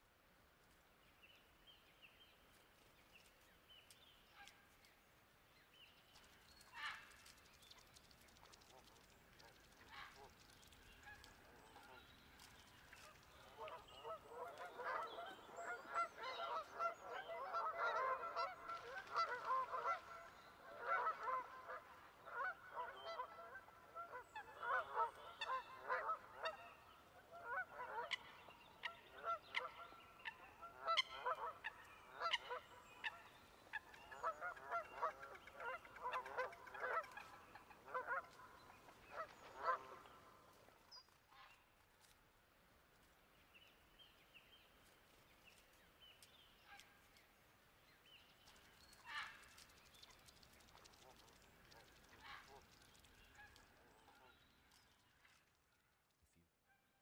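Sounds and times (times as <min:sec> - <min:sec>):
geese honking: 0:13.5 - 0:26.6, 0:34.2 - 0:40.2.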